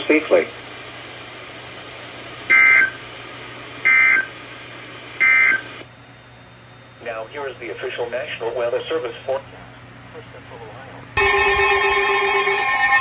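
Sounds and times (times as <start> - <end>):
radio hiss: 0.0 - 5.8, 7.0 - 11.1
two-tone digital data bursts: 2.5 - 3.0, 3.9 - 4.3, 5.2 - 5.6.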